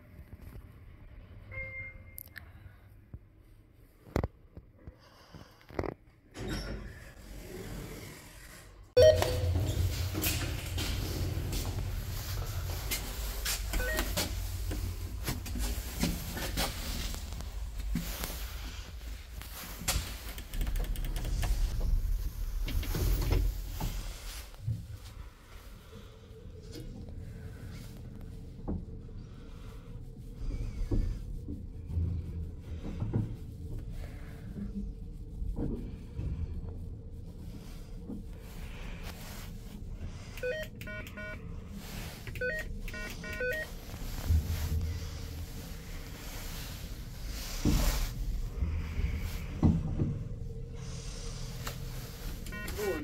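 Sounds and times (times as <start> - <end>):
elevator low hum: 6.4 - 53.0
electronic chime beeps: 9.0 - 9.6
elevator doors rumbling: 9.0 - 24.4.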